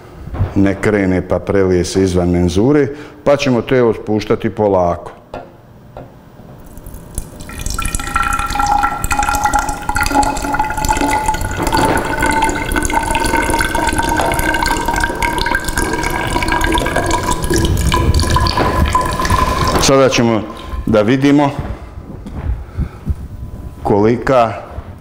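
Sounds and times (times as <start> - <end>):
water pouring into glass cylinder: 6.6 - 21.4.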